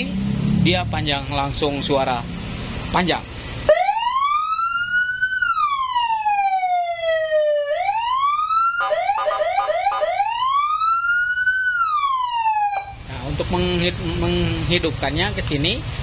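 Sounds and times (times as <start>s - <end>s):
electronic siren wailing and yelping: 3.7s - 13.0s.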